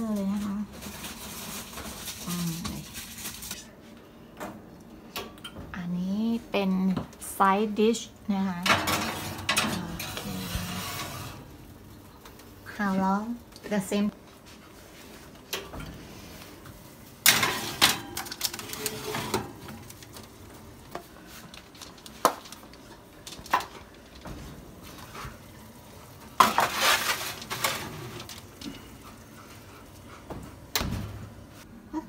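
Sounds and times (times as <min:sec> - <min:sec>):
baking tray scraping on oven racks: 0:00.2 - 0:03.5, 0:08.6 - 0:11.6, 0:17.3 - 0:19.9, 0:26.2 - 0:28.6.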